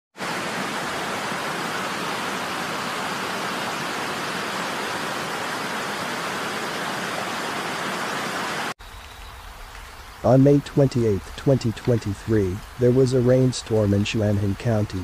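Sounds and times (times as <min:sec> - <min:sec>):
river rushing: 0:00.2 - 0:08.8.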